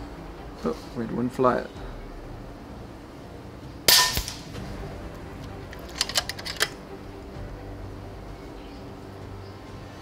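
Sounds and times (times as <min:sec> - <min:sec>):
air rifle shot: 0:03.9 - 0:04.6
rifle action clicks: 0:05.7 - 0:06.8.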